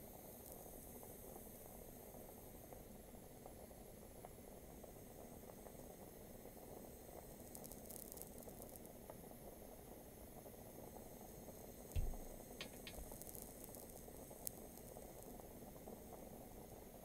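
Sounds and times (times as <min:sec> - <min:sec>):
low thump: 0:12.0 - 0:12.3
sharp ticks: 0:12.0 - 0:15.0
faint crackling: 0:12.0 - 0:15.4.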